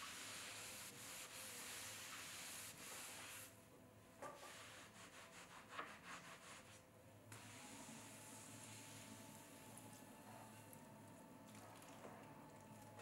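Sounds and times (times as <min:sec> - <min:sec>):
sponge rubbing wood: 0:00.0 - 0:03.5
sponge scrubbing strokes: 0:00.0 - 0:03.6.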